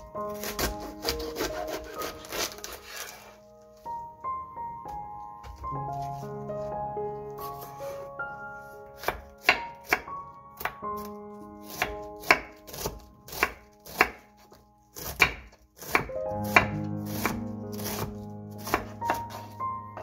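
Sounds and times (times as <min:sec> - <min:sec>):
knife cutting cabbage on board: 0:00.0 - 0:03.4, 0:07.4 - 0:19.6
background piano music: 0:00.0 - 0:20.0.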